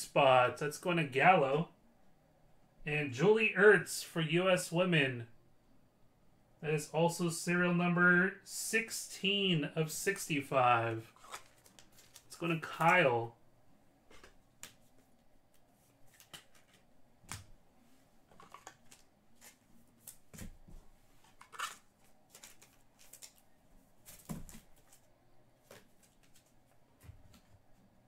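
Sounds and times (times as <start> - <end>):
cards rustling: 11.0 - 13.1, 14.1 - 17.5, 18.3 - 20.5, 21.2 - 27.5.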